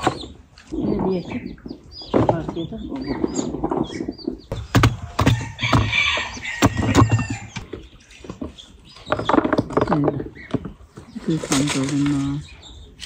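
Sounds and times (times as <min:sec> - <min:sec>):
tomatoes knocking and thudding: 0:04.5 - 0:07.5.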